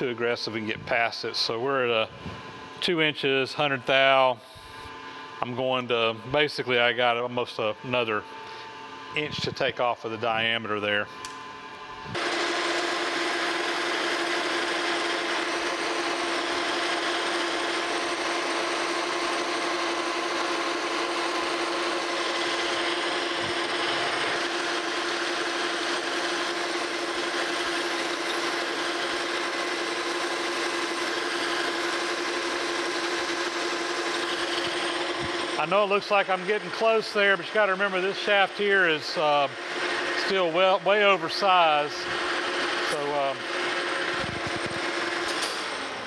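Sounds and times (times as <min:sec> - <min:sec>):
machine running tone: 0:00.0 - 0:46.0
lathe cutting hiss: 0:15.9 - 0:42.4.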